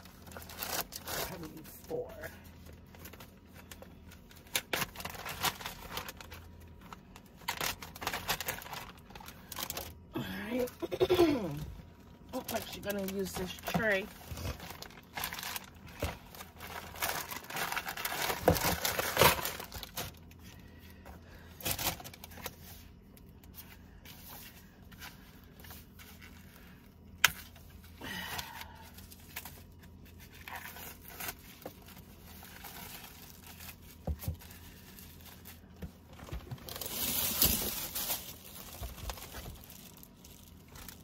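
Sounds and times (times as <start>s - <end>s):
wrapping crinkling: 0.0s - 11.2s, 12.0s - 41.0s
plastic film tearing: 0.2s - 1.5s, 3.0s - 10.0s, 12.4s - 20.2s, 36.6s - 41.0s.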